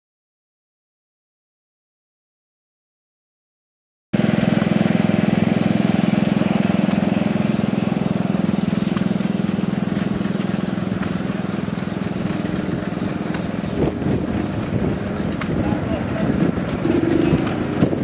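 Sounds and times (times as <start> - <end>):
engine idling: 4.2 - 18.0.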